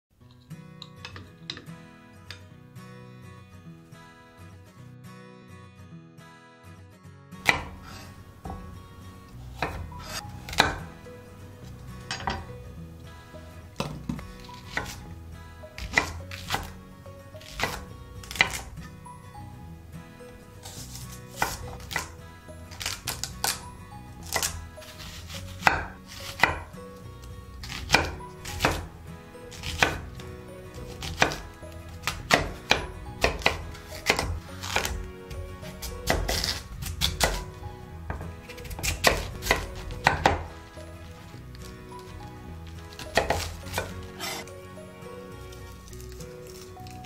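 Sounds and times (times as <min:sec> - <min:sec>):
knife chopping on wooden board: 0:07.4 - 0:08.8, 0:09.4 - 0:11.0, 0:11.6 - 0:12.5, 0:13.8 - 0:15.1, 0:15.8 - 0:16.8, 0:17.4 - 0:18.8, 0:20.6 - 0:23.6, 0:24.2 - 0:26.8, 0:27.6 - 0:28.9, 0:29.5 - 0:35.1, 0:35.7 - 0:37.5, 0:38.1 - 0:42.1, 0:42.7 - 0:44.5.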